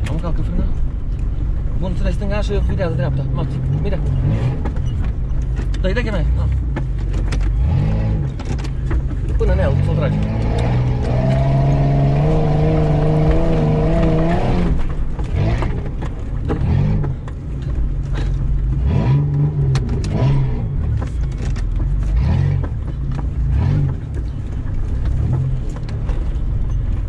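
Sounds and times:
engine revving under load: 3.0 - 4.9, 6.2 - 17.3, 18.3 - 24.3.

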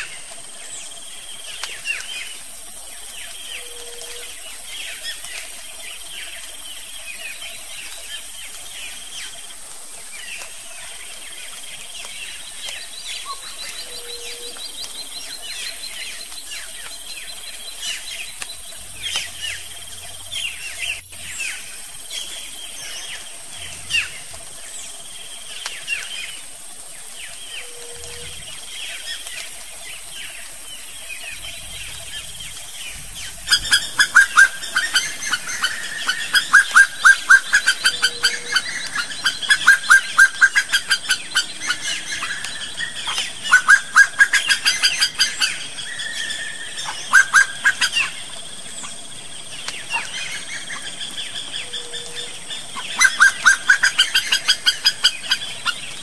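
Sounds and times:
faint bird chirps: 0.8 - 9.4, 12.0 - 26.4
bird calling loudly: 31.4 - 41.8.

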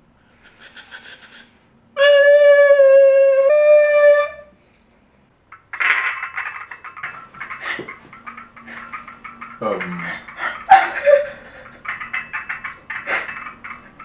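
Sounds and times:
soft rough noisy sound: 4.4 - 14.0.

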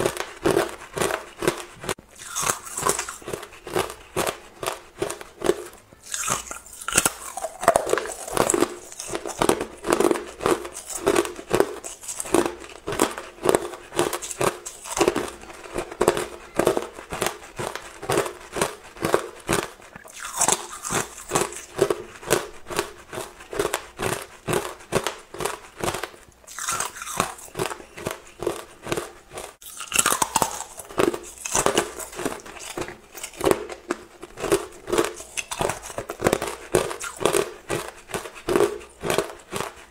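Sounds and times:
ice crunching between teeth: 0.0 - 39.9.

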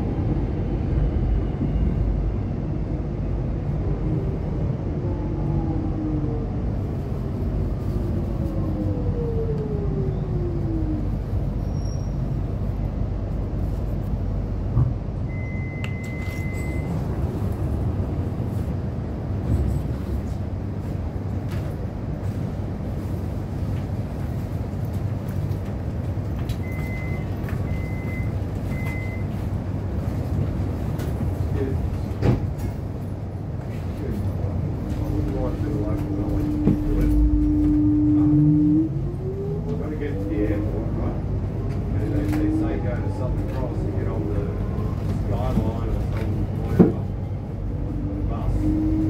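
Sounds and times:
low rumble and hum: 0.0 - 49.0
short electronic beeps: 15.3 - 17.0
train motor whine: 35.0 - 39.8
long electronic tone: 36.0 - 39.7.

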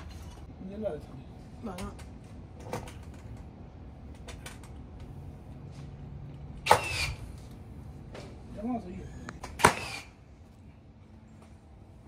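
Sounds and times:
nail gun firing into wood: 6.6 - 7.2, 9.4 - 10.1.

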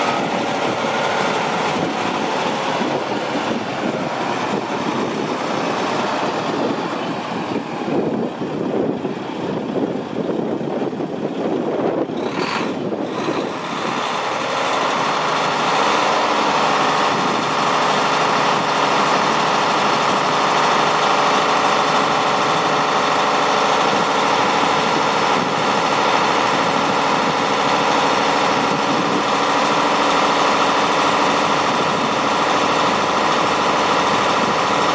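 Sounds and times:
diesel engine idling: 0.0 - 34.9.

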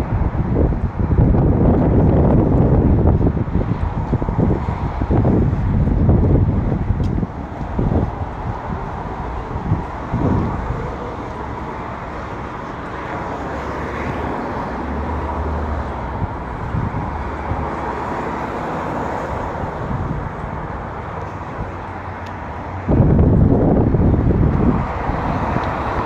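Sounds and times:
road traffic hum: 0.0 - 26.0
wind buffeting microphone: 0.0 - 26.0.

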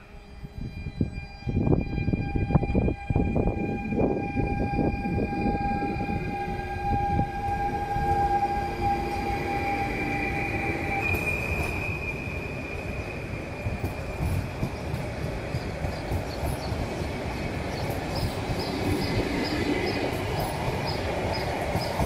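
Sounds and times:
train wheels rumbling on rails: 0.8 - 22.0.

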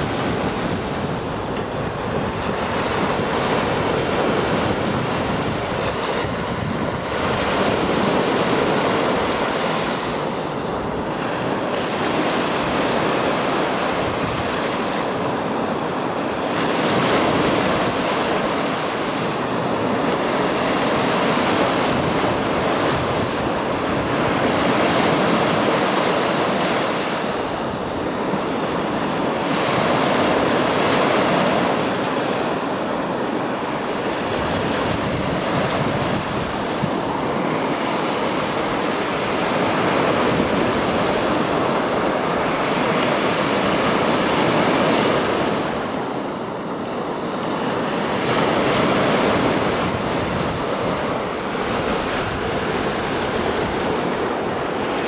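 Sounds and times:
waves washing up a sandy shore: 0.0 - 55.0.

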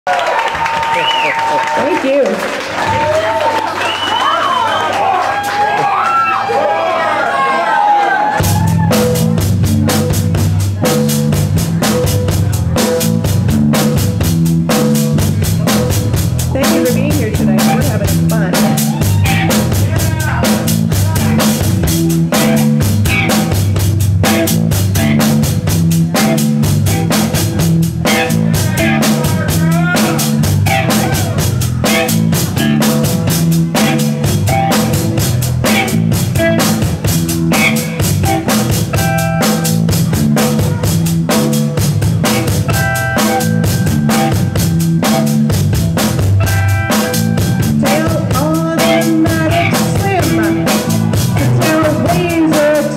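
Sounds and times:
bass guitar riff: 8.4 - 52.9
drum kit beat: 8.4 - 52.9.

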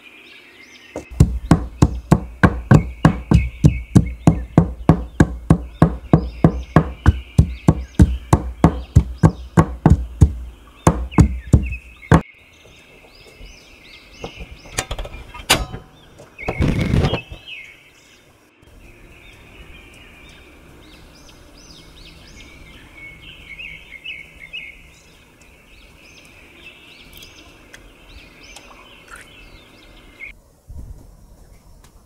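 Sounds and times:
birds chirping: 0.0 - 30.5
knife chopping on cutting board: 1.0 - 12.2.

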